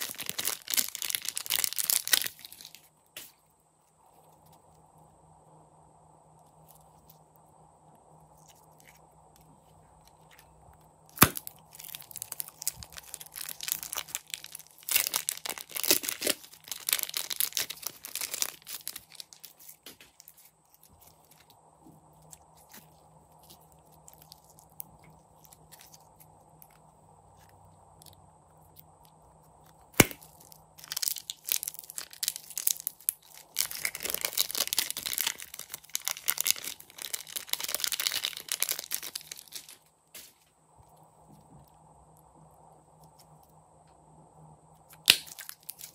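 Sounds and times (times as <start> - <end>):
slime crackling and popping: 0.0 - 2.9, 11.1 - 21.4, 29.9 - 39.8, 44.9 - 45.9.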